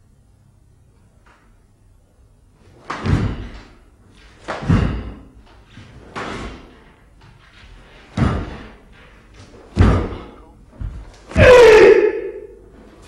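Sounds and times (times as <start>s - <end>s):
heavy ringing thuds: 2.9s - 3.8s, 4.5s - 5.4s, 8.1s - 8.9s, 9.7s - 11.5s.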